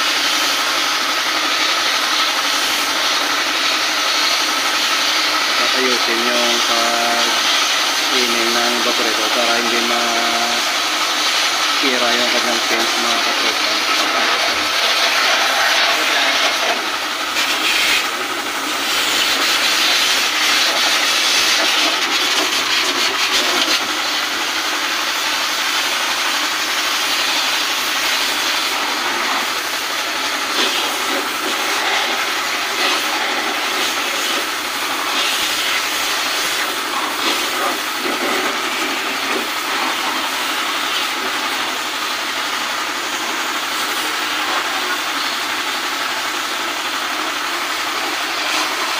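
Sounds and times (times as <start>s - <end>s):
hose water jet spraying: 0.0s - 48.9s.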